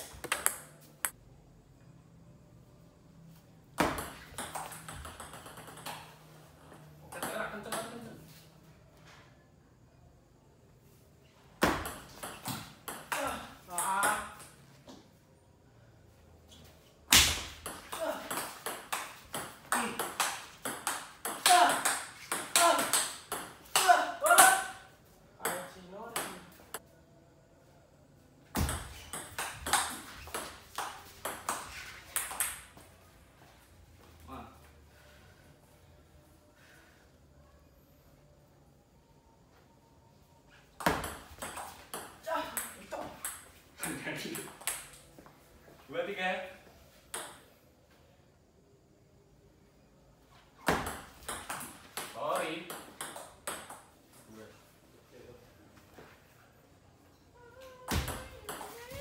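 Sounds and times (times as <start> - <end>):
table tennis ball clicking: 0.1 - 0.7.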